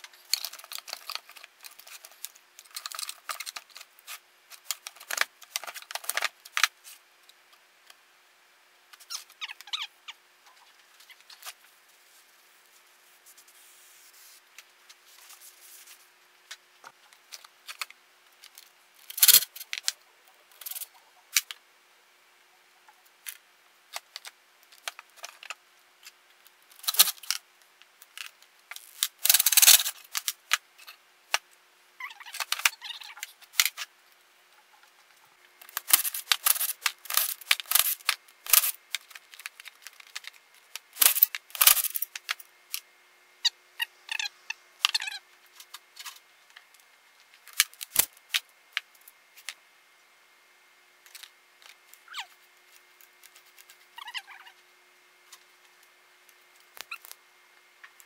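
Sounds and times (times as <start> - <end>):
metal tools clicking and scraping: 35.6 - 39.1, 41.0 - 42.4.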